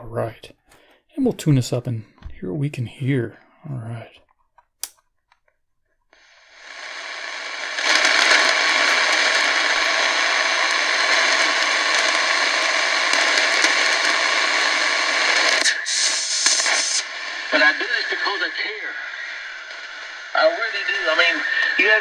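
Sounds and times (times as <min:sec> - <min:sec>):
radio static hiss: 0:06.2 - 0:22.0.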